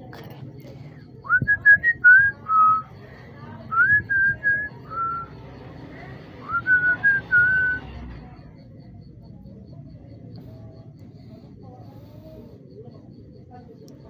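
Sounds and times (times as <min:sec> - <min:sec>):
person whistling a tune: 0:01.2 - 0:02.8, 0:03.7 - 0:05.3, 0:06.4 - 0:07.9.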